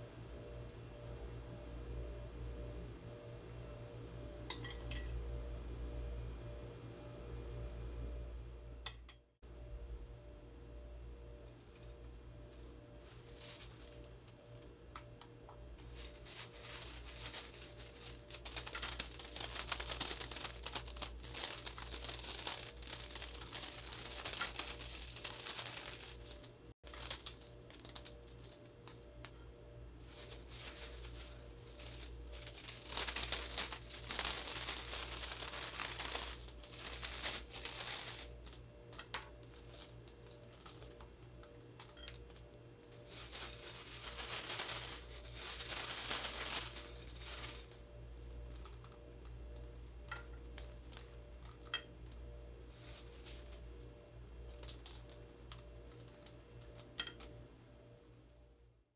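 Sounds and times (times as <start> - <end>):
steady low hum: 0.0 - 58.8
crisp chips crumbled by hand: 11.5 - 57.4.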